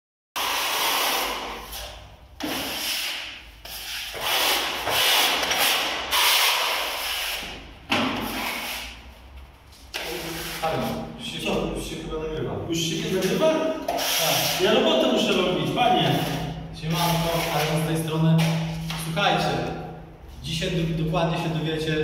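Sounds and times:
trowel scraping plaster wall: 0:00.4 - 0:09.0, 0:13.2 - 0:15.0, 0:15.9 - 0:17.9.

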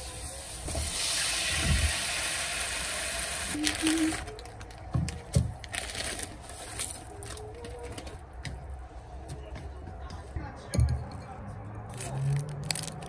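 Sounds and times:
water pouring into a pan: 0:00.0 - 0:03.6
packet crinkling: 0:03.5 - 0:08.2, 0:11.9 - 0:13.0.

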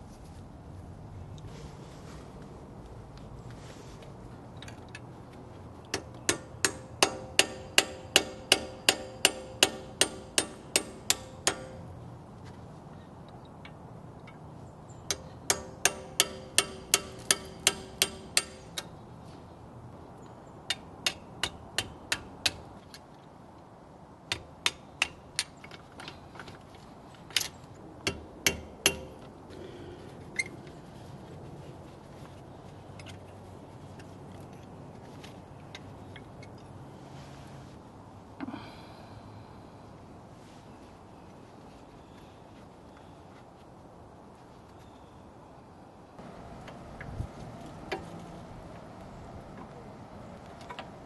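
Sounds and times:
hammer tapping metal punch: 0:05.9 - 0:11.9, 0:15.1 - 0:18.9, 0:28.1 - 0:29.3.

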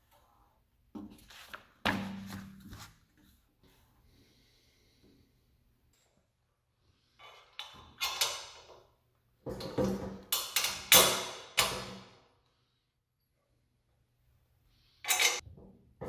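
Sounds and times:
metal plates and bolt knocking: 0:09.4 - 0:11.9.

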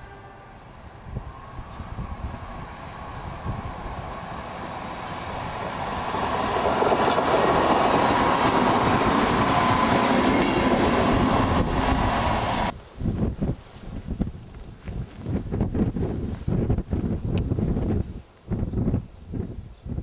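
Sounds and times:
diesel railcar passing: 0:00.0 - 0:12.8
wheels clicking over rail joints: 0:05.0 - 0:11.0.

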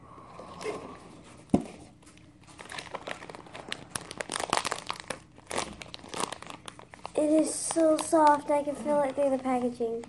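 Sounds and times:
plastic packaging crinkling: 0:02.0 - 0:10.0.

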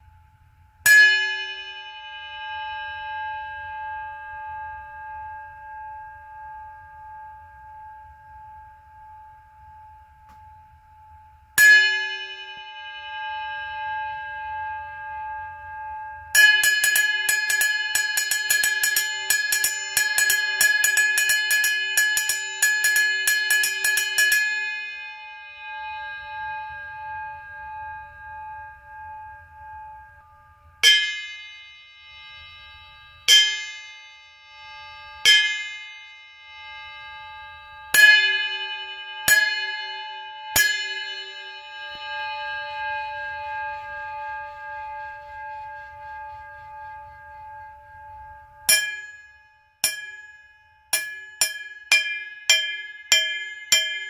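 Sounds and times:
drumstick striking metal cymbal: 0:16.3 - 0:27.8, 0:30.8 - 0:44.2, 0:48.7 - 0:54.0.

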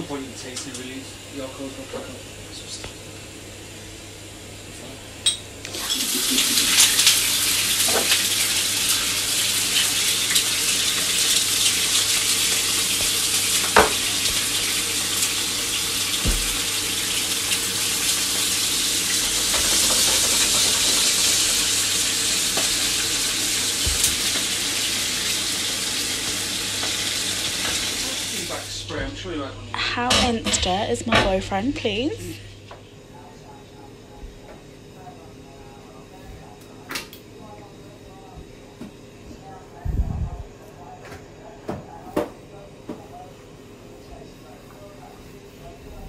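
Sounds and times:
pork chops sizzling in a pan: 0:05.7 - 0:28.8.

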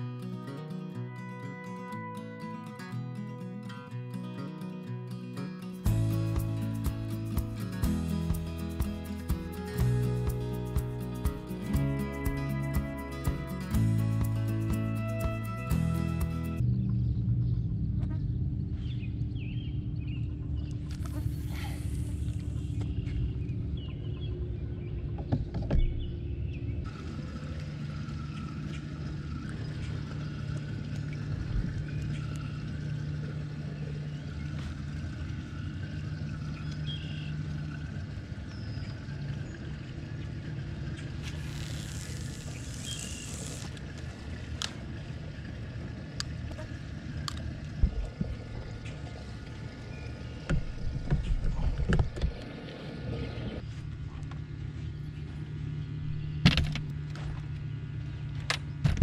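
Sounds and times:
low hum: 0:05.7 - 0:59.0
fishing line hiss: 0:21.0 - 0:22.6, 0:41.2 - 0:43.8.

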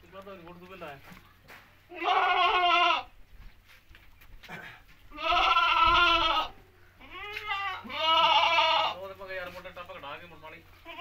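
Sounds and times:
goats bleating: 0:01.9 - 0:03.1, 0:05.1 - 0:09.2, 0:10.8 - 0:11.0.

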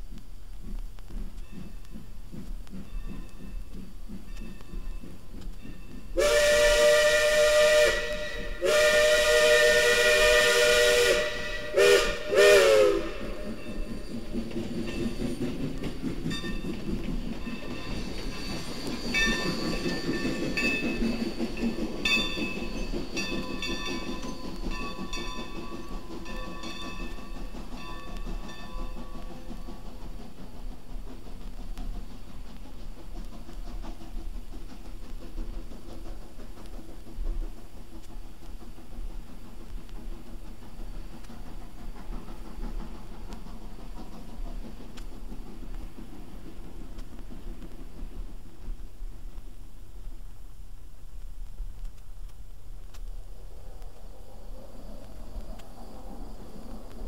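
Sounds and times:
locomotive exhaust beats: 0:00.0 - 0:57.0
steam hissing: 0:00.0 - 0:57.0
steam locomotive whistle: 0:06.2 - 0:14.0.

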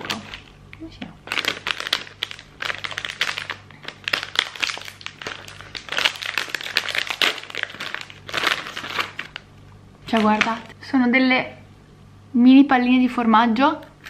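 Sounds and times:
snack pouch crinkling: 0:01.2 - 0:09.5.

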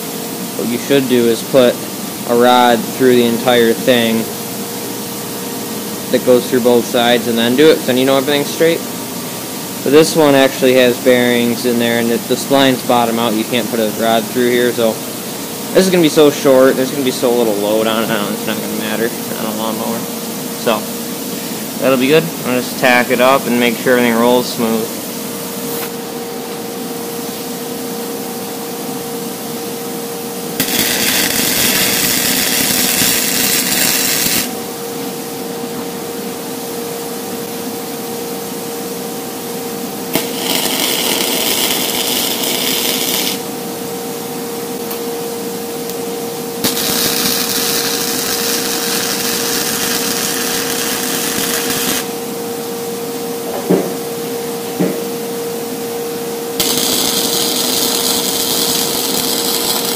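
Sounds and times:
steady shop hum: 0:00.0 - 0:59.9
electric arc welder welding: 0:30.6 - 0:34.6, 0:40.1 - 0:43.6, 0:46.6 - 0:52.2, 0:56.6 - 0:59.9.

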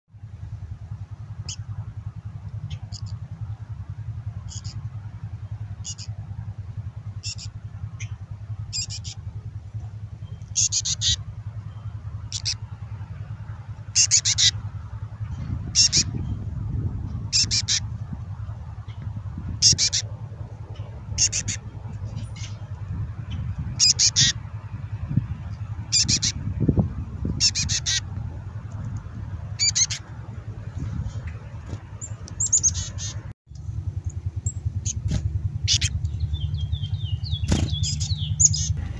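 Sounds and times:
low steady rumble: 0:00.1 - 0:38.9
chickadee raspy begging calls: 0:02.6 - 0:03.2, 0:04.4 - 0:04.8, 0:05.8 - 0:06.1, 0:07.2 - 0:09.3, 0:10.2 - 0:12.7, 0:13.8 - 0:14.6, 0:15.3 - 0:16.3, 0:17.2 - 0:18.0, 0:18.8 - 0:24.4, 0:25.8 - 0:26.5, 0:27.3 - 0:28.2, 0:29.6 - 0:30.1, 0:32.0 - 0:33.3, 0:34.4 - 0:38.9.

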